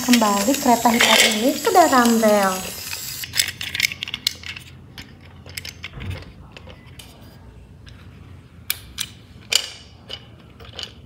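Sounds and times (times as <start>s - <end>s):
plastic toy clicks and taps: 0.1s - 2.8s.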